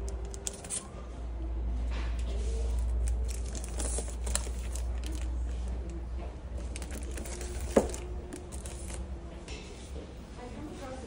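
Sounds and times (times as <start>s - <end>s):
plastic sleeves crinkling: 0.0s - 0.9s, 2.2s - 9.1s.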